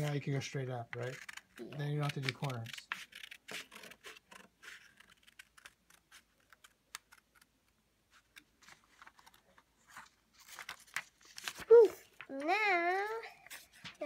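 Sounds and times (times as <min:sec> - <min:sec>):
paper rustling: 0:00.9 - 0:14.0
scissors snipping paper: 0:01.0 - 0:07.5.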